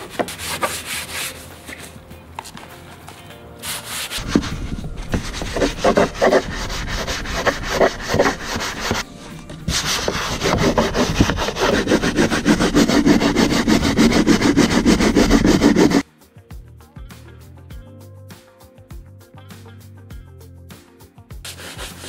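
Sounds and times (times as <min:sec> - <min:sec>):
brush scrubbing plastic: 0:03.6 - 0:16.0, 0:21.5 - 0:22.0.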